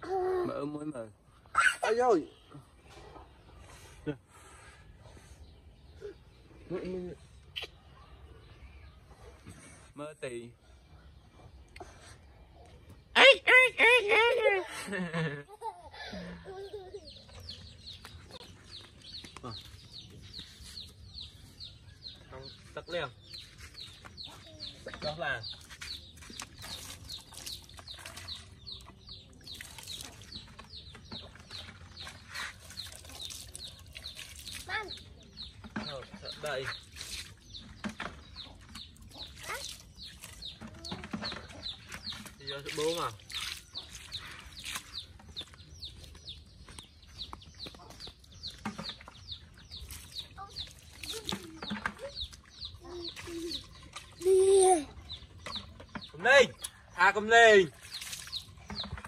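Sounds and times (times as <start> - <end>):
bird chirping: 16.5 - 59.0
chicks peeping: 35.4 - 54.2.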